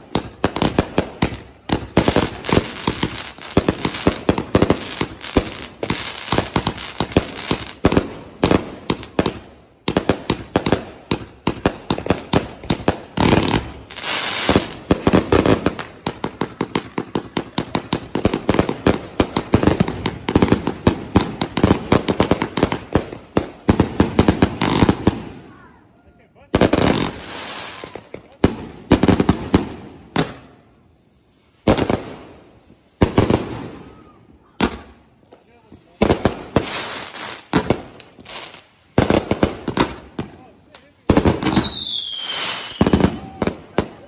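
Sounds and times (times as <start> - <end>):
fireworks banging in volleys: 0.0 - 25.7, 26.4 - 44.0
firework hissing: 0.2 - 9.4, 10.0 - 22.9, 26.6 - 28.0, 34.7 - 44.0.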